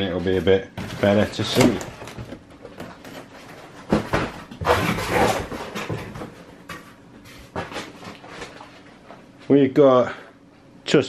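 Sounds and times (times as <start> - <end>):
cardboard rustling scrape: 0.8 - 6.4.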